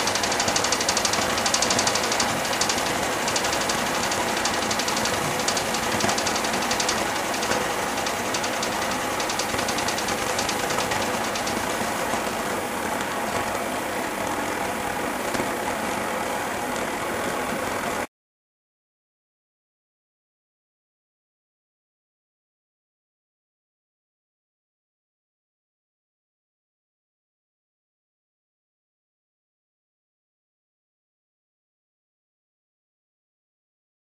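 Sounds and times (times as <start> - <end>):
engine mechanical clatter: 0.0 - 18.1.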